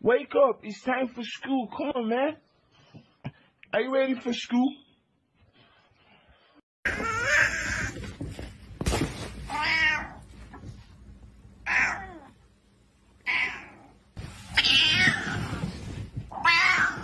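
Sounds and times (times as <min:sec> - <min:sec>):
cat meowing angrily: 0:09.5 - 0:10.2, 0:11.6 - 0:12.3, 0:13.2 - 0:15.6, 0:16.3 - 0:17.0.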